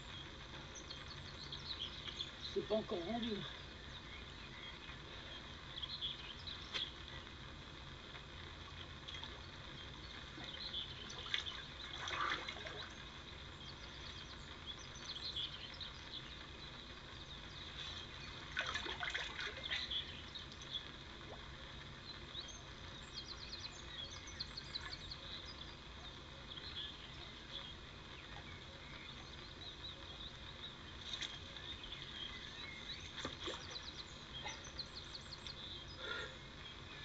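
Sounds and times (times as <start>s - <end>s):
birds calling: 0.0s - 7.4s, 8.7s - 37.0s
bird chirps: 22.3s - 37.0s.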